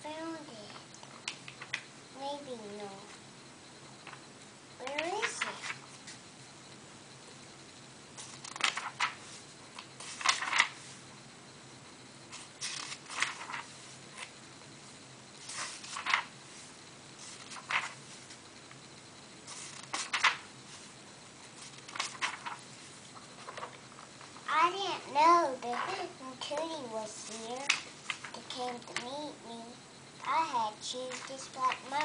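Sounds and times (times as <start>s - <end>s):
book pages rustling: 8.2s - 10.9s, 12.3s - 14.3s, 15.4s - 18.4s, 19.5s - 20.9s, 21.5s - 24.4s, 27.2s - 29.1s, 31.1s - 32.0s.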